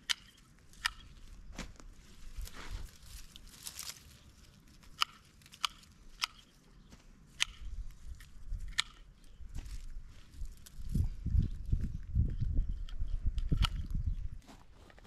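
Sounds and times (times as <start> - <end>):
pruning shears snipping stems: 0.0 - 6.6, 7.3 - 9.9
plants rustling: 1.0 - 5.9.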